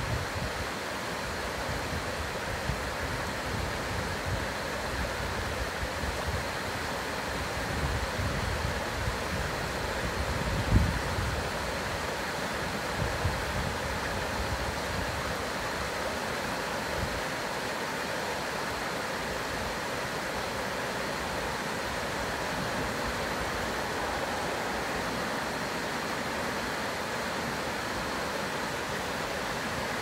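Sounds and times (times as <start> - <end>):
wind rumble on microphone: 0.0 - 0.7, 7.5 - 11.7
stream rushing over rocks: 0.0 - 30.0.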